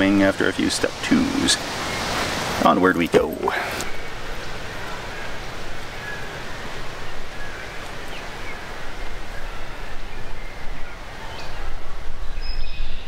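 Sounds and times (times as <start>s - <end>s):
bird chirps: 12.2s - 13.0s.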